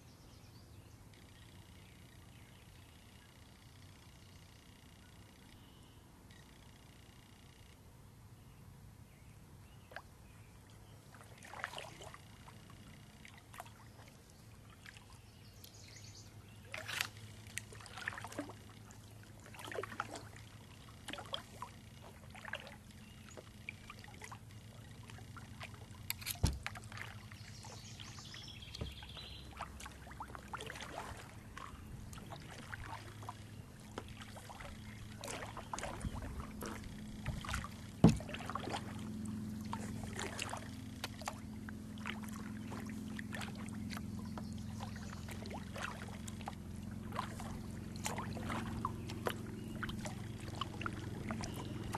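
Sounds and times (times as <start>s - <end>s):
low steady hum: 0.0s - 51.9s
paddle splashes and drips: 9.8s - 51.9s
paddle knocking on hull: 26.4s - 27.2s, 28.6s - 31.2s, 33.9s - 39.0s.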